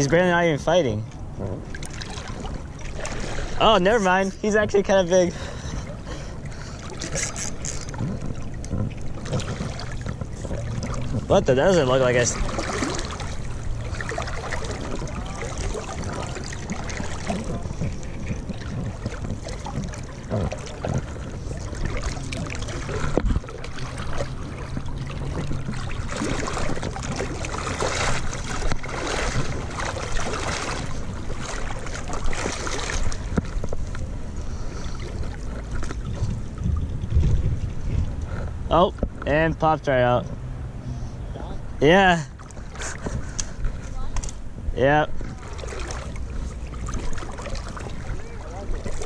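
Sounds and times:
river water splashing: 0.0s - 49.0s.

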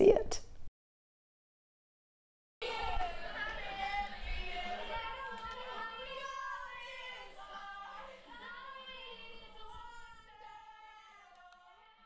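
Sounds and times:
women talking: 0.0s - 0.4s
women singing: 2.6s - 12.0s.

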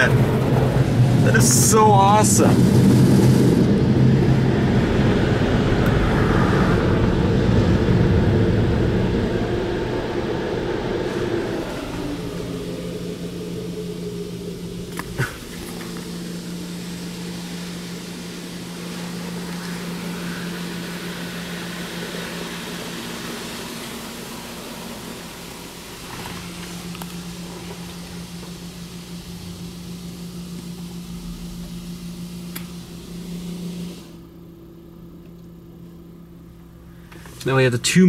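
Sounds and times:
dryer air blowing: 0.0s - 34.3s, 36.8s - 37.7s
low hum: 0.0s - 38.0s
water spray rushing over car: 11.0s - 34.2s.

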